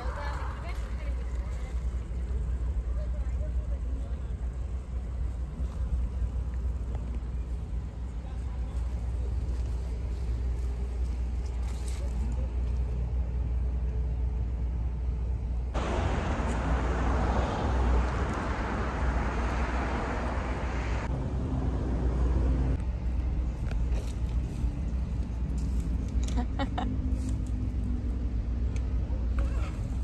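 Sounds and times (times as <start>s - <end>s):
traffic low rumble: 0.0s - 30.0s
rushing noise: 15.8s - 22.8s.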